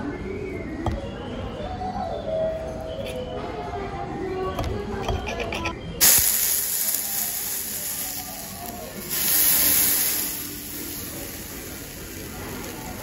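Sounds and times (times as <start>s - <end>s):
steak sizzling on hot plate: 6.0s - 13.0s.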